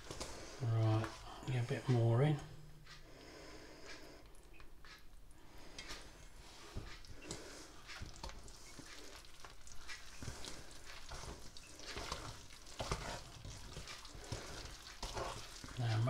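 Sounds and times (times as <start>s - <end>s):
whisk scraping batter in bowl: 7.9s - 16.0s.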